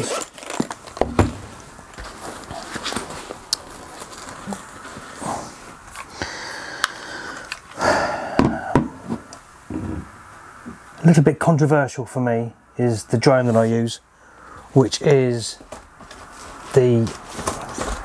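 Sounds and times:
fabric rustling: 0:00.8 - 0:05.9, 0:15.6 - 0:18.0.

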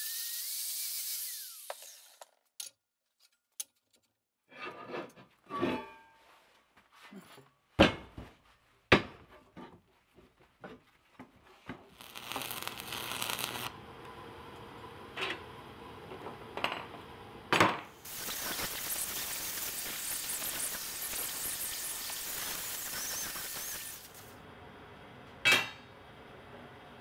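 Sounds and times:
angle grinder grinding steel: 0:00.0 - 0:02.2, 0:12.0 - 0:13.7, 0:18.0 - 0:24.3
arc welder crackling and hissing: 0:11.9 - 0:14.2, 0:18.0 - 0:24.4.

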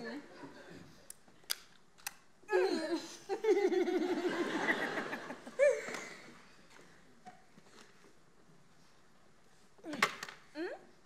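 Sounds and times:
sharp clicks: 0:01.1 - 0:02.2.

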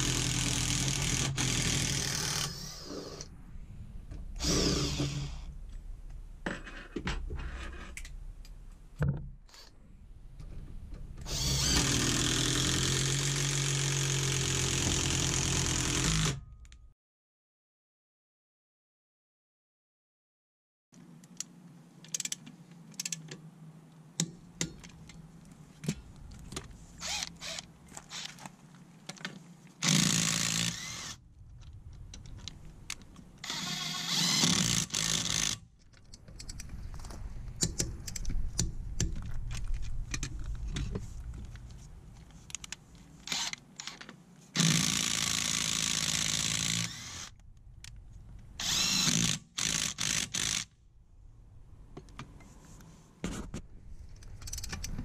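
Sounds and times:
sharp clicks and handling noise: 0:21.0 - 0:29.8, 0:31.4 - 0:33.5, 0:35.8 - 0:44.2, 0:53.2 - 0:55.0.

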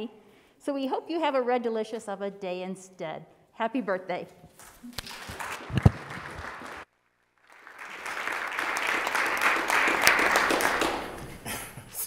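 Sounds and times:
people applauding: 0:04.9 - 0:11.6.

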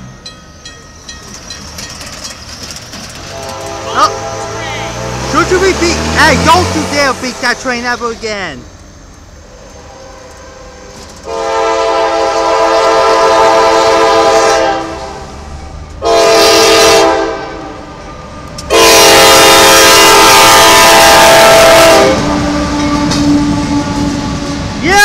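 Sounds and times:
passing train: 0:00.0 - 0:25.0
train horn blasts: 0:03.2 - 0:05.6, 0:09.5 - 0:15.2, 0:16.0 - 0:18.1, 0:18.7 - 0:24.7.

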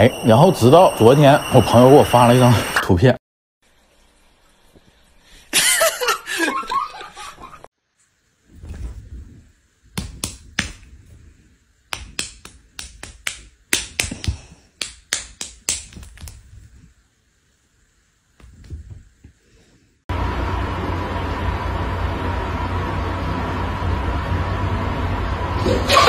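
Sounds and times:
steady hiss with low hum: 0:00.0 - 0:25.6
faint rustle: 0:08.0 - 0:09.6
sharp snapping clicks: 0:10.0 - 0:10.8, 0:11.9 - 0:16.4.

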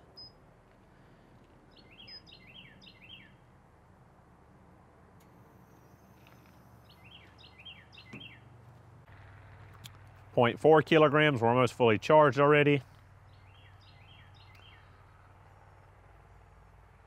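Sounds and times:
songbird singing: 0:00.0 - 0:00.4, 0:01.5 - 0:03.5, 0:05.2 - 0:08.7, 0:12.8 - 0:16.6.

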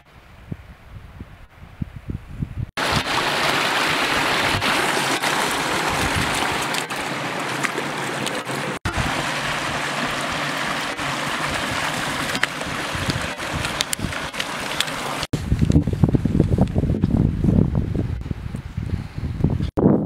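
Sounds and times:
water rushing in stony stream: 0:02.8 - 0:15.6.

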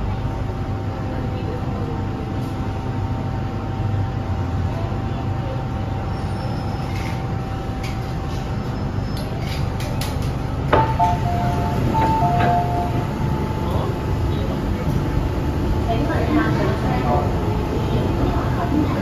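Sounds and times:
train carriage rumble: 0:00.0 - 0:19.0
train clicks: 0:09.1 - 0:13.1
thin steady whine: 0:10.7 - 0:19.0
two-tone door chime: 0:10.8 - 0:13.1.

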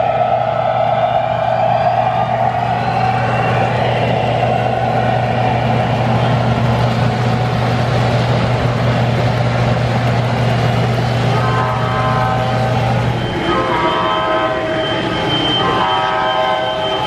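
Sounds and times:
low diesel engine hum: 0:00.0 - 0:17.0
model train wheels rumbling on rail: 0:00.0 - 0:17.0
model train horn: 0:11.2 - 0:17.0.

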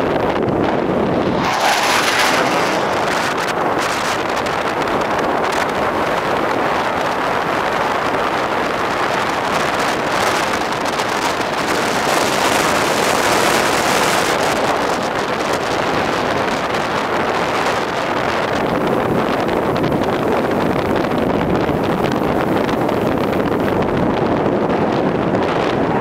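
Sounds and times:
jet flying overhead: 0:00.0 - 0:06.9.

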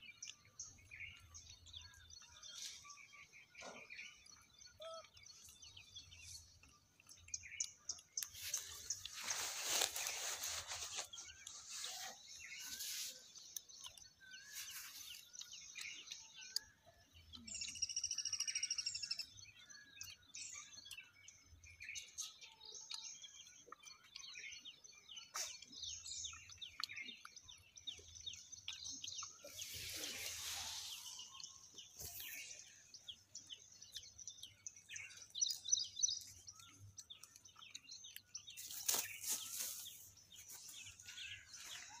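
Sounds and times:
birds chirping and calling: 0:00.0 - 0:42.0
rustling: 0:08.3 - 0:13.2.

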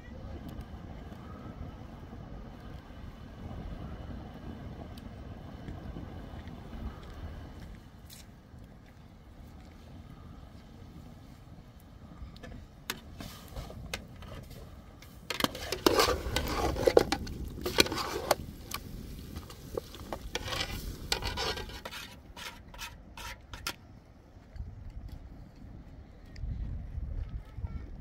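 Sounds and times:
scraping and rubbing: 0:12.9 - 0:23.8.

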